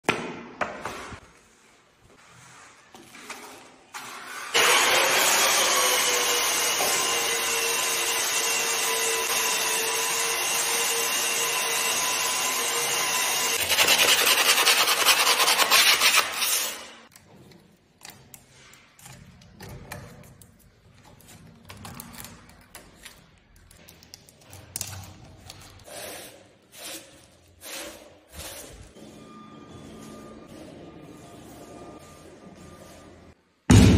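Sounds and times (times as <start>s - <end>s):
electric drywall sander whining: 4.4s - 16.2s.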